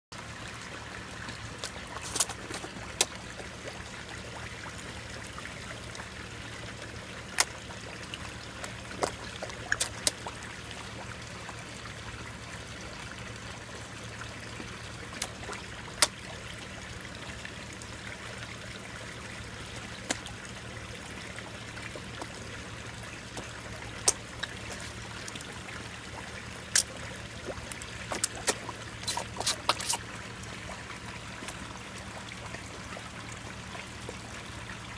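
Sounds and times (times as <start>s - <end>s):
trickle of running water: 0.2s - 34.9s
fish smacking at water surface: 1.6s - 3.2s, 8.6s - 10.2s, 23.4s - 25.5s, 28.1s - 30.1s.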